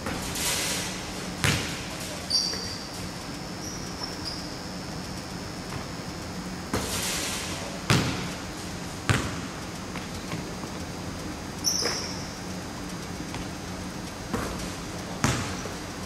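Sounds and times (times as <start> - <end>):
basketball bouncing on wooden floor: 1.4 - 1.8, 7.9 - 8.3, 9.1 - 10.5, 14.3 - 15.8.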